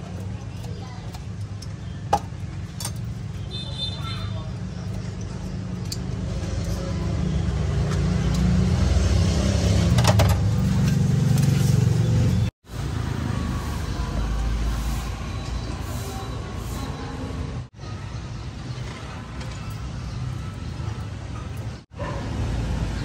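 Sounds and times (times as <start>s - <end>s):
traffic rumble: 0.0s - 23.0s
vehicle engine rumbling: 0.0s - 23.0s
metal clicks of scissors and tongs: 4.9s - 6.9s.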